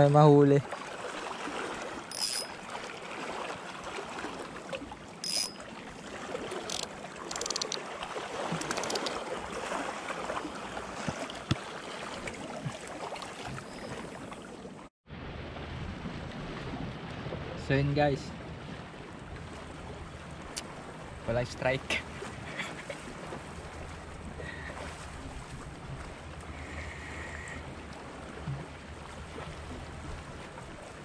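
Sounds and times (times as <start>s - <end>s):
waves lapping on rocky shore: 0.6s - 31.0s
faint short clicks: 8.6s - 9.2s.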